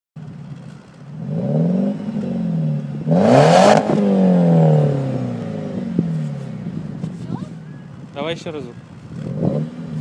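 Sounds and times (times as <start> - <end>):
car engine revving: 1.1 - 7.2, 9.0 - 10.0.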